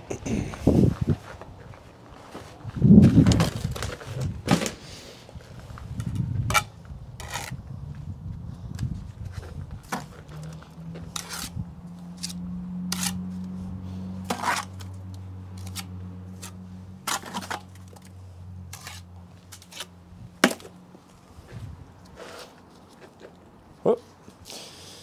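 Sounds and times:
trowel scraping and clinking on brick: 0:11.1 - 0:11.5, 0:14.3 - 0:14.9.

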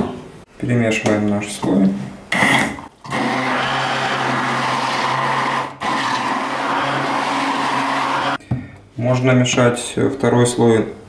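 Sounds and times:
hand blender running in liquid: 0:03.1 - 0:08.4.

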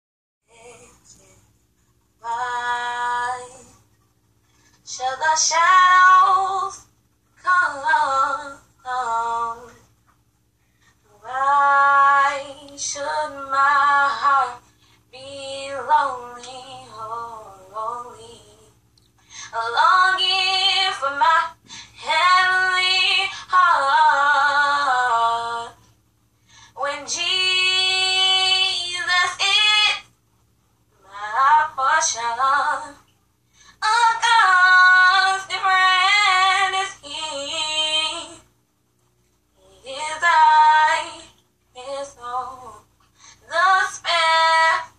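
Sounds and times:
girl singing unaccompanied: 0:00.5 - 0:01.4, 0:19.5 - 0:25.8, 0:26.8 - 0:30.1, 0:33.8 - 0:38.5, 0:39.6 - 0:44.9.

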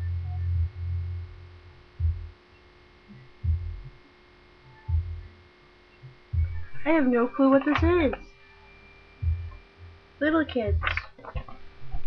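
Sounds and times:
faint electrical hum: 0:00.0 - 0:12.0
low muffled thumps: 0:02.0 - 0:02.4, 0:03.4 - 0:04.0, 0:04.9 - 0:05.3, 0:06.1 - 0:08.3, 0:09.2 - 0:09.7, 0:10.7 - 0:12.0.

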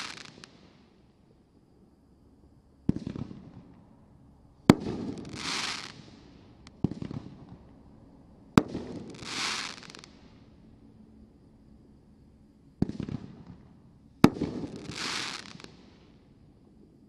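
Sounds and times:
firework crackling hiss: 0:00.0 - 0:00.9, 0:04.8 - 0:06.3, 0:08.7 - 0:10.2, 0:14.3 - 0:16.2.

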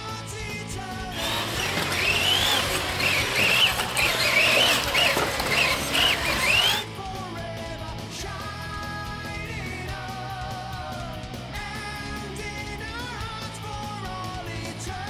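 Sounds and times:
rock music: 0:00.0 - 0:15.0.

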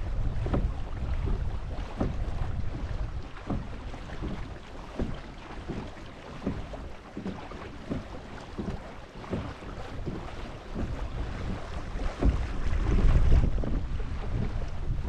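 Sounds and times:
paddle water swishes: 0:00.0 - 0:15.0
wind rumble on microphone: 0:00.0 - 0:15.0.

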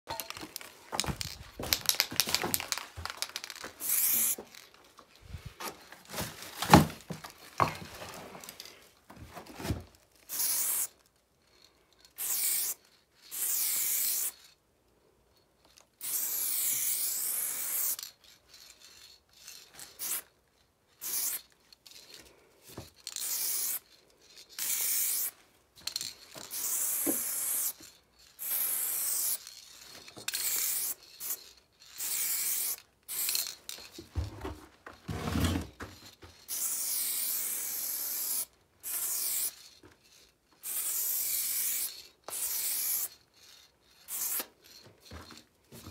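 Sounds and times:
spray paint can hissing: 0:01.0 - 0:04.5, 0:10.3 - 0:11.0, 0:12.2 - 0:14.5, 0:16.0 - 0:18.1, 0:19.8 - 0:20.2, 0:21.0 - 0:21.5, 0:23.1 - 0:23.8, 0:24.6 - 0:27.8, 0:28.4 - 0:33.5, 0:36.5 - 0:39.8, 0:40.6 - 0:44.8
knocks and scuffs: 0:34.0 - 0:36.3.

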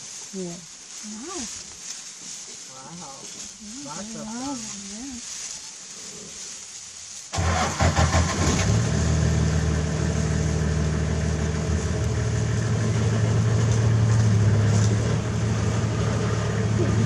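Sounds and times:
vehicle engine starting and running: 0:07.3 - 0:17.0.

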